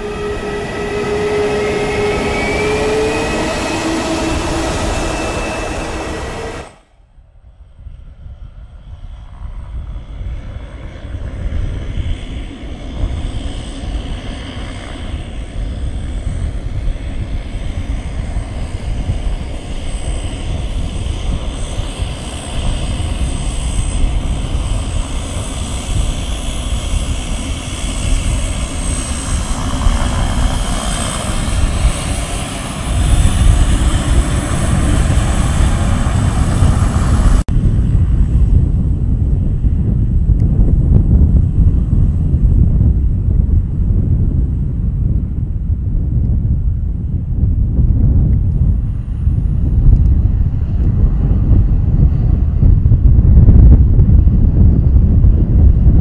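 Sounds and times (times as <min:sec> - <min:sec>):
intro tones sliding upward: 0:00.0 - 0:06.9
turboprop engines running: 0:00.0 - 0:06.9, 0:07.8 - 0:56.0.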